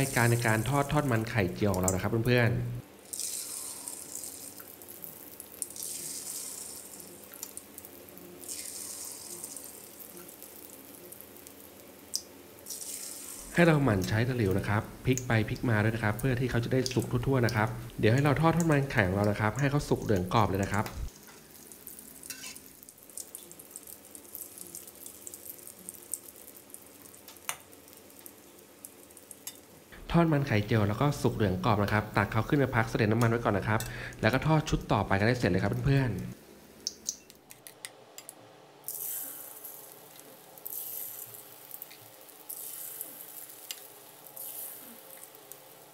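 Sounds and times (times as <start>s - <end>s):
batter sizzling in hot oil: 0.0s - 37.2s, 38.7s - 45.9s.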